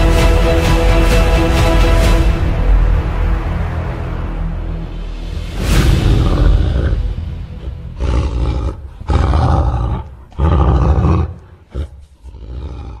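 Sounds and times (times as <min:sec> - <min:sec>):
deep musical hit: 0:00.0 - 0:08.5
deep animal roars: 0:05.8 - 0:13.0.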